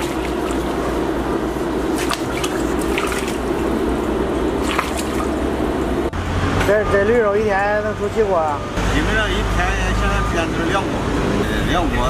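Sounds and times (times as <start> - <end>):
broth splashing and dripping: 0.0 - 5.9
steady low hum: 0.0 - 6.4.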